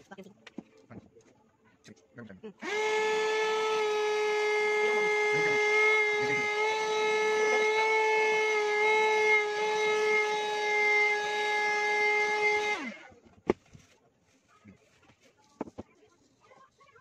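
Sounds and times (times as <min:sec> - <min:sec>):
handheld vacuum cleaner whining: 0:02.6 - 0:13.6.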